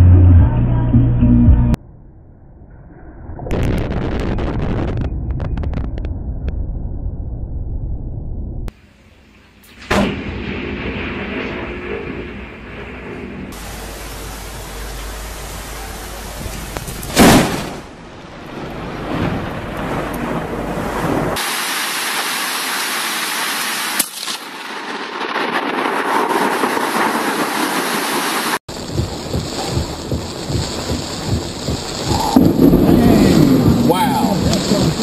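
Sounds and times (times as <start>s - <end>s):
thunder crack: 3.2s - 8.7s, 9.6s - 21.6s, 24.7s - 35.0s
wind-driven rain buffeting: 11.2s - 23.9s, 24.6s - 35.0s
rain hissing: 13.5s - 35.0s.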